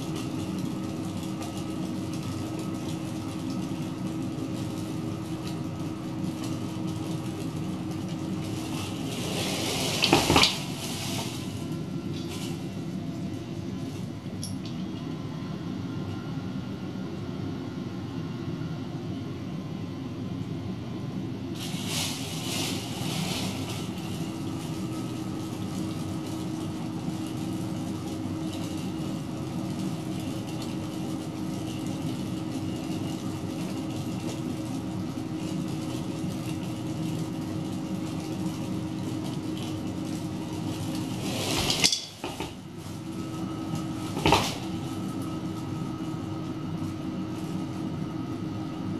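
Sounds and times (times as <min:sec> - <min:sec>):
cooling fan whirring: 0:00.0 - 0:48.9
plastic bag rustling: 0:07.0 - 0:14.1, 0:21.5 - 0:27.7, 0:37.8 - 0:48.0.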